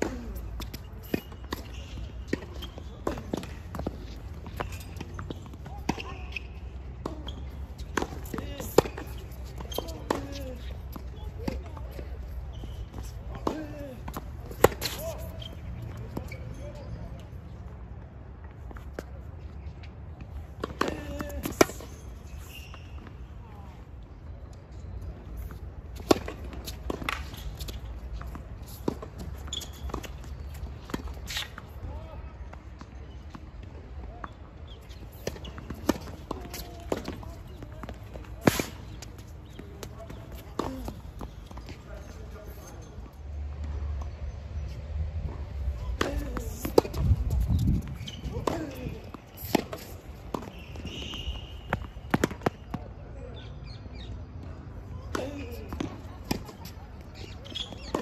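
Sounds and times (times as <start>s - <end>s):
tennis ball bouncing: 0.0s - 12.2s, 34.9s - 41.8s, 45.3s - 52.8s, 55.1s - 58.0s
racket hitting tennis ball: 35.2s - 41.7s, 45.3s - 52.7s.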